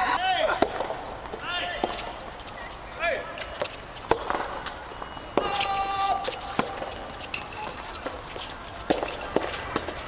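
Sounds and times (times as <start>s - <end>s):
tennis ball hit by rackets: 0.5s - 1.0s, 3.4s - 8.2s, 8.8s - 10.0s
person shouting: 5.4s - 6.3s.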